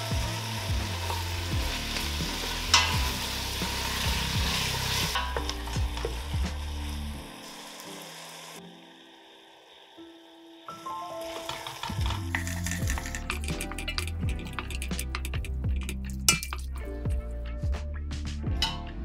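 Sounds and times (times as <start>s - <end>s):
food sizzling in hot oil: 0.0s - 16.9s
wooden spoon stirring in pot: 11.2s - 16.9s.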